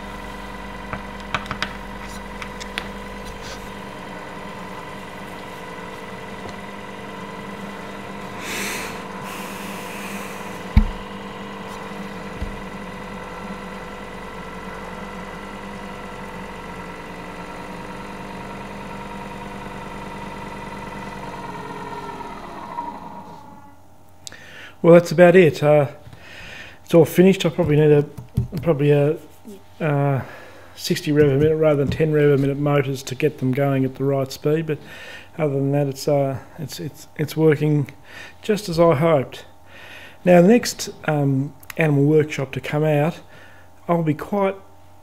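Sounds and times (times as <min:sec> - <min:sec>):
gear motor whine: 0:00.0 - 0:23.9
low thud: 0:10.8 - 0:11.1.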